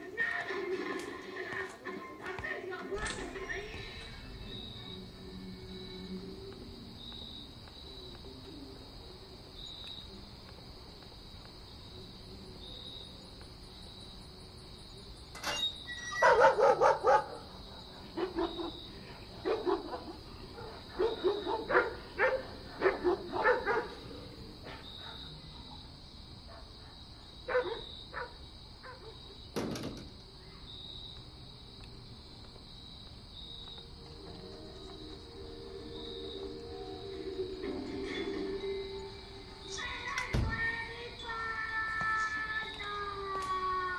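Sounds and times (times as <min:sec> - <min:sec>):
dog barking: 0:16.2 - 0:18.8, 0:19.4 - 0:24.1, 0:24.7 - 0:25.7, 0:26.5 - 0:29.2.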